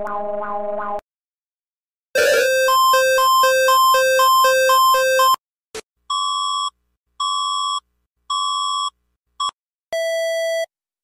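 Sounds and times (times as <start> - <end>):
alternating two-tone alert: 2.2 - 5.4.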